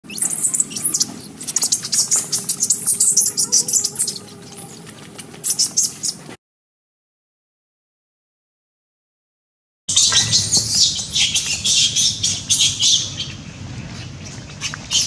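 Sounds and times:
high-pitched bird chirping: 0.0s - 6.2s, 9.9s - 13.4s
low background hum: 9.9s - 15.0s.

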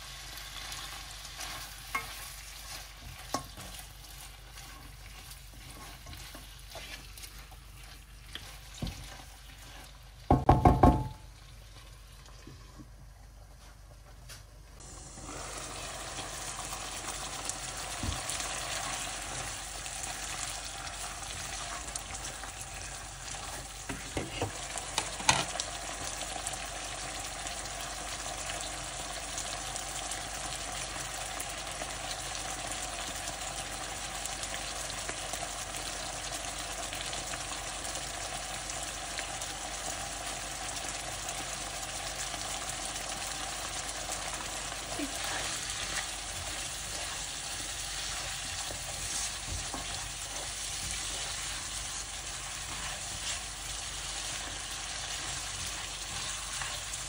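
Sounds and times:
meat sizzling in a pan: 0.0s - 12.2s, 14.8s - 57.0s
stirring: 0.4s - 12.9s, 43.4s - 57.0s.

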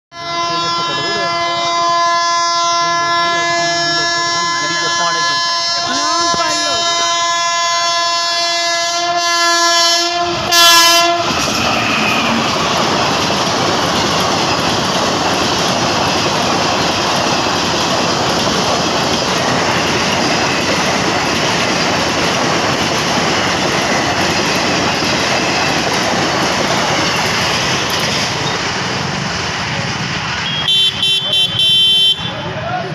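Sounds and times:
locomotive horn blast: 0.1s - 12.4s, 30.4s - 32.4s
train wheels on rails: 2.8s - 8.8s, 9.5s - 31.7s.

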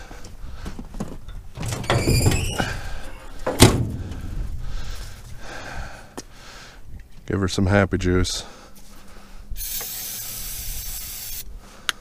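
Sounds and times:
metal panel thunk: 3.4s - 4.3s.

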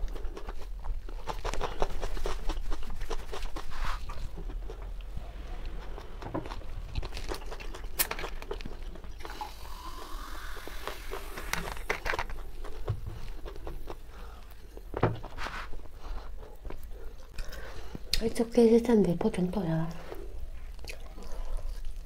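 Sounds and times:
fizzing soda pouring into glass: 9.2s - 11.9s.

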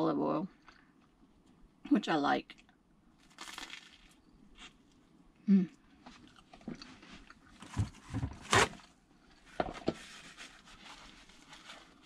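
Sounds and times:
person chewing pizza: 2.6s - 5.1s, 6.0s - 7.6s.

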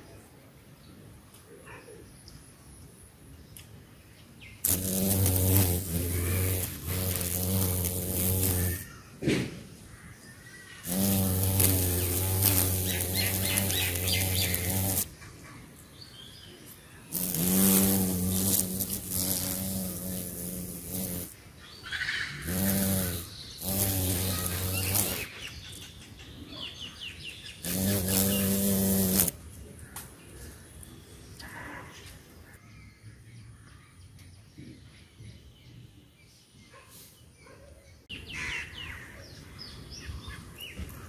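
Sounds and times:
bee buzzing in flight: 4.6s - 8.9s, 10.8s - 15.1s, 17.1s - 21.4s, 22.4s - 25.3s, 27.6s - 29.3s.

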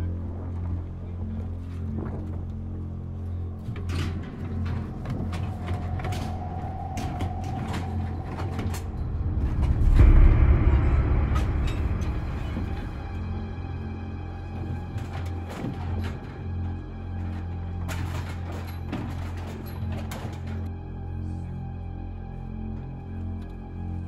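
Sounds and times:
steel gates clanking and sliding: 3.6s - 20.7s.

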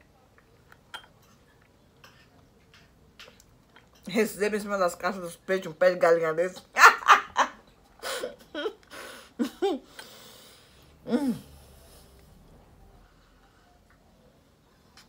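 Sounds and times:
woman laughing: 6.7s - 10.0s
woman breathing: 8.0s - 12.4s.

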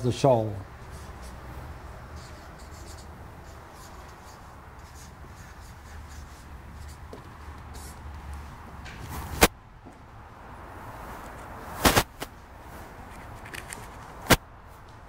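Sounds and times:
marker scratching on paper: 0.8s - 8.2s.

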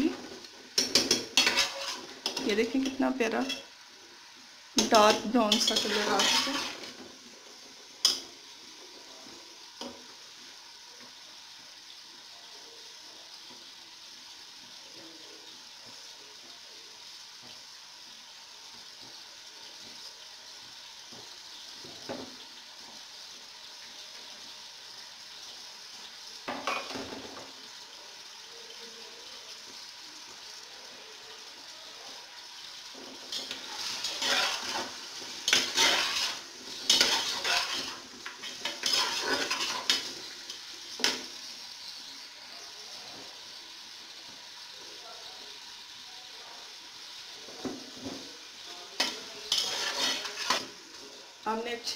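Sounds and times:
chicken sizzling in hot oil: 0.0s - 51.9s
metal spatula scraping pot: 0.8s - 3.7s, 4.8s - 7.0s, 33.2s - 40.4s, 49.0s - 50.8s.

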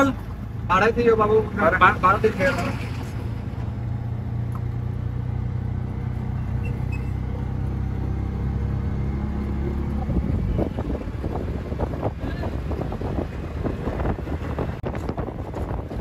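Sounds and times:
buffeting noise: 0.0s - 16.0s
vehicle engine humming: 0.0s - 16.0s.

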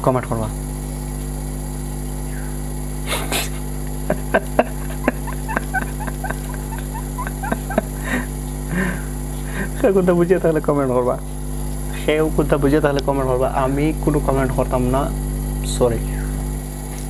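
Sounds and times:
steady electrical hum: 0.0s - 17.0s
man giggling quietly: 3.0s - 9.8s.

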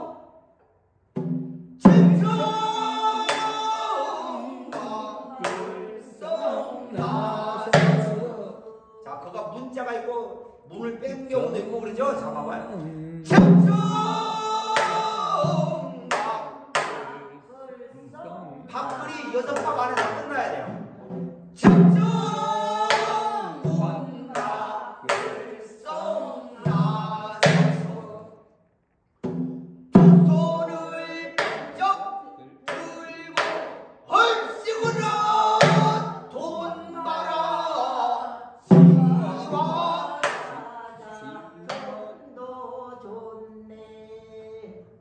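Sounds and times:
sharp percussive strikes: 1.2s - 3.7s
man singing ornamented line: 1.8s - 9.8s, 10.7s - 17.5s, 34.1s - 44.9s.

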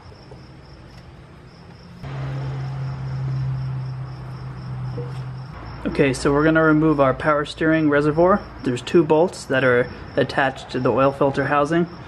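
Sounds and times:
cricket chirping: 0.0s - 12.0s.

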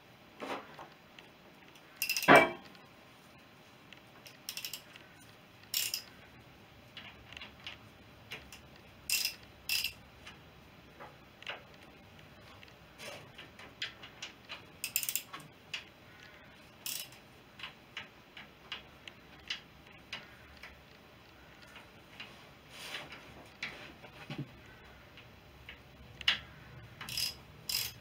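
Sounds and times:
hand tools clinking on metal: 27.1s - 28.0s.

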